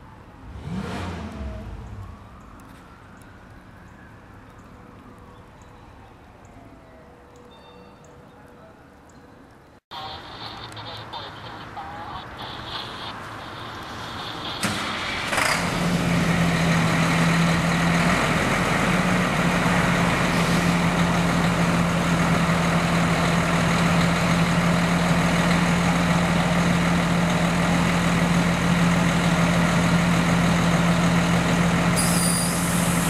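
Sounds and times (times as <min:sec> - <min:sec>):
diesel engine idling: 0:09.9 - 0:33.0.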